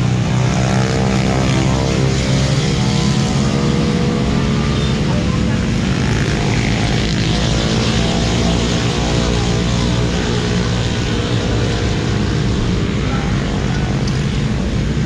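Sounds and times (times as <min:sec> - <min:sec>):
motorcycle engine running: 0:00.0 - 0:15.0.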